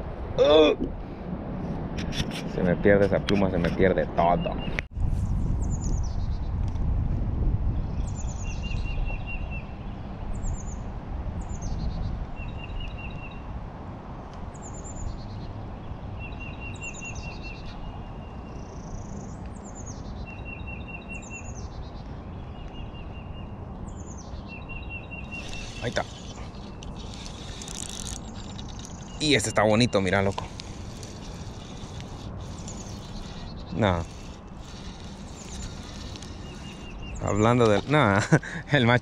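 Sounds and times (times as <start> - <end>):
songbird singing: 3.0 - 4.9, 5.6 - 6.6, 7.8 - 13.6, 14.2 - 39.0.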